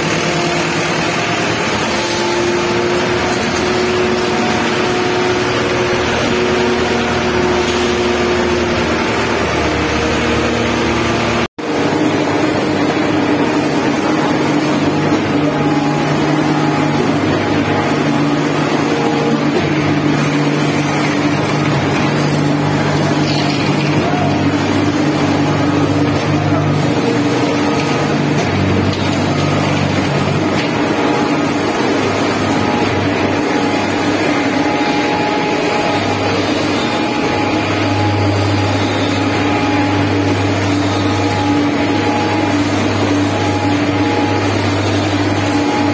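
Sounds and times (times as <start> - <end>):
spraying machine hum: 0.0 - 45.9.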